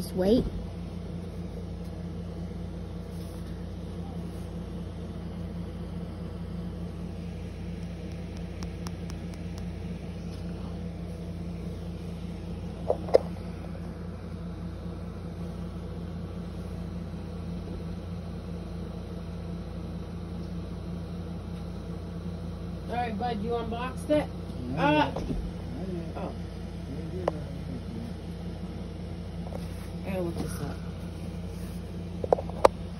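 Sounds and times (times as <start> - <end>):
low mechanical hum: 0.0 - 32.9
sharp clicks: 7.7 - 9.8.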